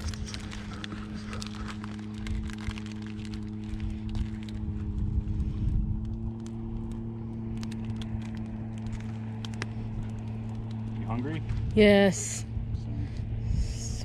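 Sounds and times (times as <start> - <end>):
wind buffeting microphone: 0.0 - 9.1, 9.9 - 14.0
low motor hum: 0.0 - 14.0.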